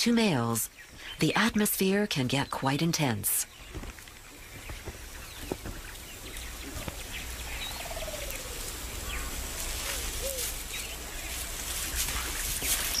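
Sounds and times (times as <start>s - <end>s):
faint bird chirps: 0.3s - 13.0s.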